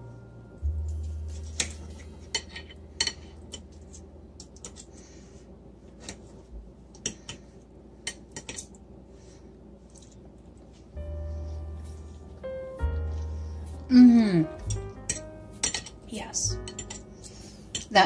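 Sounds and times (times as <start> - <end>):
fork clinking and scraping on plate: 1.4 - 4.9, 16.6 - 17.9.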